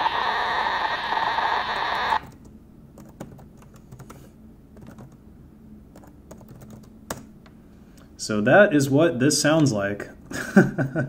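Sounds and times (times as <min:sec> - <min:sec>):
dense digital noise with tones: 0:00.0 - 0:02.3
keyboard typing clicks: 0:04.8 - 0:05.2, 0:06.0 - 0:07.3.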